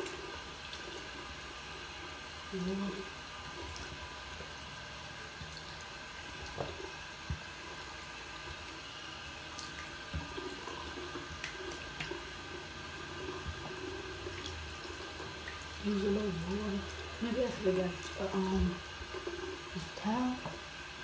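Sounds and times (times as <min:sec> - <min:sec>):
tap running into basin: 0:03.4 - 0:21.0
small clicks and splashes: 0:09.5 - 0:12.4.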